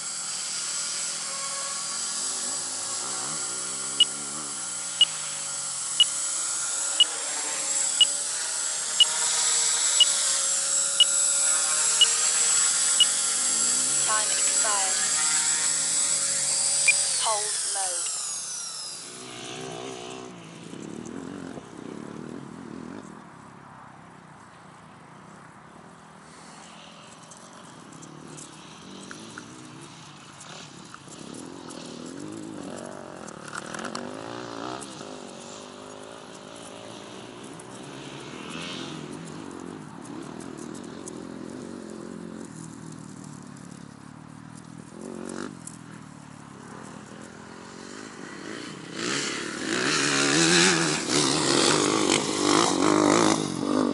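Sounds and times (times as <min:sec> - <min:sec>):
distant engine running: 0:00.0 - 0:23.1.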